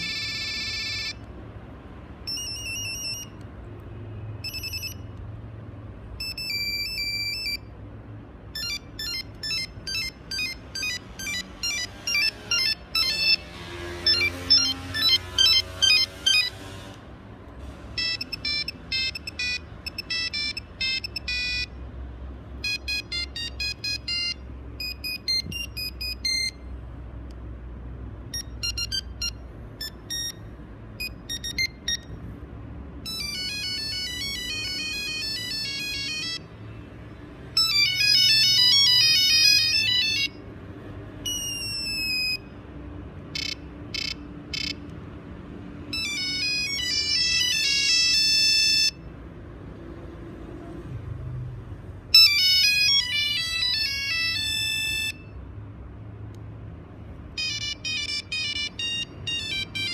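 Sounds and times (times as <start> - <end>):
monophonic ringtone beeps: 0.0 - 1.2, 2.2 - 3.4, 4.4 - 5.1, 6.1 - 7.7, 8.5 - 16.6, 18.0 - 21.8, 22.6 - 26.8, 28.3 - 32.3, 33.0 - 36.6, 37.6 - 40.4, 41.2 - 42.5, 43.3 - 44.8, 45.9 - 49.1, 52.1 - 55.4, 57.3 - 59.9.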